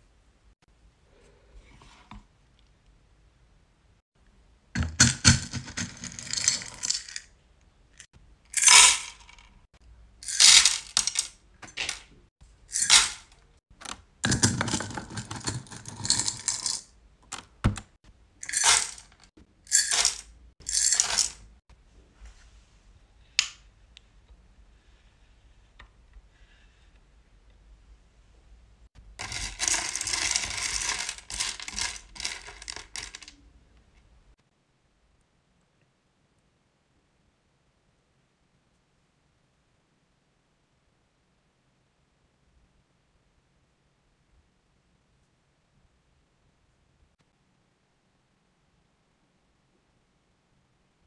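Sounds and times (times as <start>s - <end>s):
wax beads rattling against glass: 10.2s - 11.3s, 18.4s - 21.4s, 29.2s - 33.3s.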